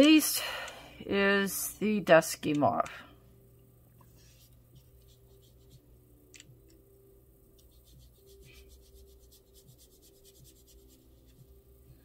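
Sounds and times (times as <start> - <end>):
brush rubbing paint on paper: 4.2 - 5.8, 7.7 - 11.6
soft clicks: 6.3 - 6.8.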